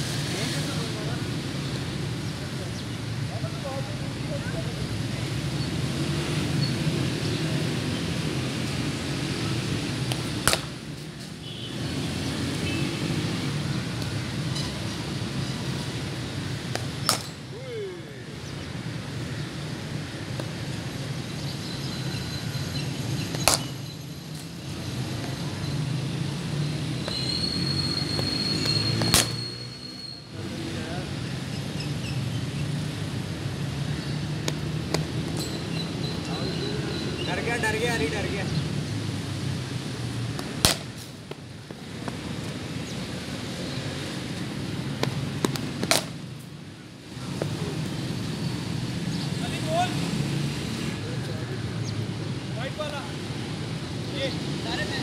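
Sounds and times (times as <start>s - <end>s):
cricket bat striking ball: 10.4s - 10.7s, 16.7s - 17.4s, 23.4s - 23.8s.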